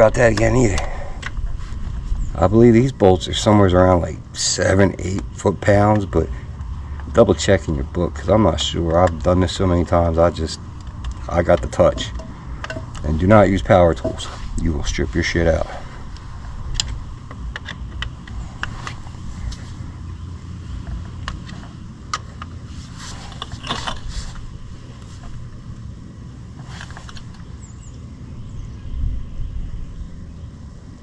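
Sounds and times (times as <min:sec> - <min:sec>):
low rumble: 0:00.0 - 0:31.0
allen key clicking and scraping on metal: 0:10.2 - 0:14.5.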